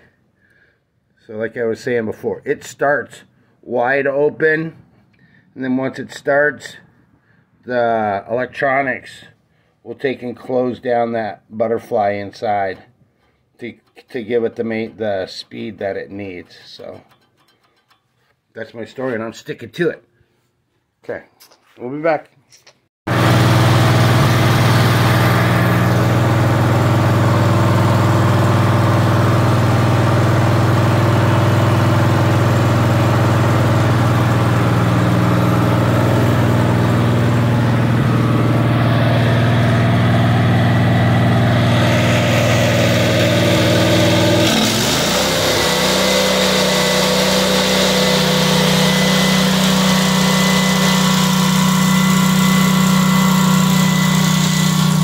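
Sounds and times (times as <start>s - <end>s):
generator engine running: 23.1s - 55.0s.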